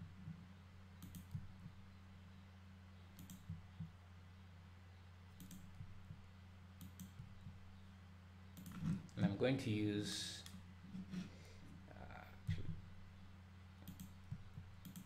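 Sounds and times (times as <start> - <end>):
low steady hum: 0.0 - 15.0
keyboard and mouse clicks: 1.0 - 1.7, 3.2 - 3.9, 5.4 - 6.2, 6.8 - 7.5, 8.6 - 9.2, 13.8 - 15.0.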